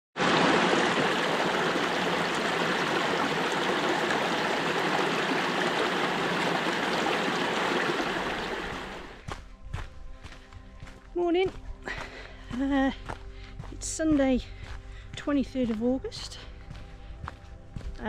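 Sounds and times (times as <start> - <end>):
stream rushing over rocks: 0.2 - 9.2.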